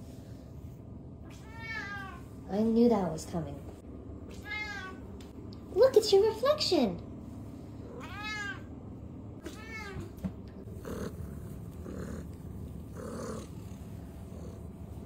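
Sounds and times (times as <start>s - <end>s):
cat meowing: 1.3s - 2.2s, 4.3s - 5.0s, 8.0s - 8.7s, 9.4s - 10.1s.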